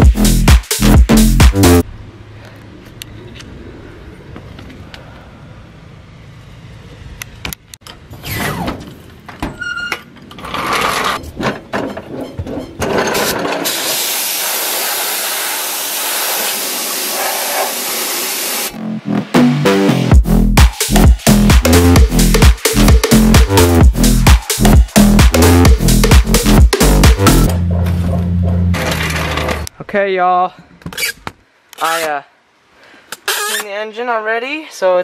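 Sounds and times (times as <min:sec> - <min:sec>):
dance music: 0:00.0 - 0:01.8, 0:18.7 - 0:28.7
pressure washer spraying: 0:13.6 - 0:18.7.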